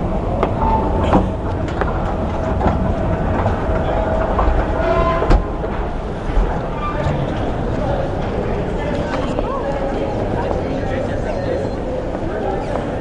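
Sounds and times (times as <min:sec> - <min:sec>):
train rumble: 0:00.0 - 0:13.0.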